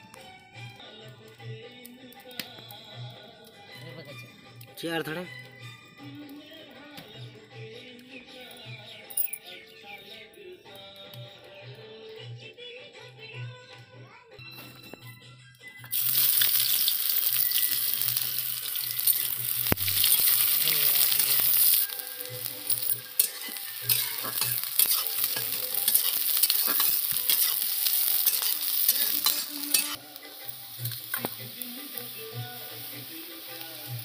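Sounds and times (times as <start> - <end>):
onions sizzling in hot oil: 15.9 - 34.0
spatula scraping pan: 18.7 - 30.0.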